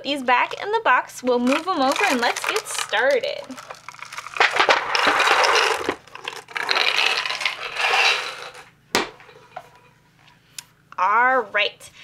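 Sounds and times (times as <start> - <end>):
wooden pieces clattering and scraping: 1.4 - 9.9.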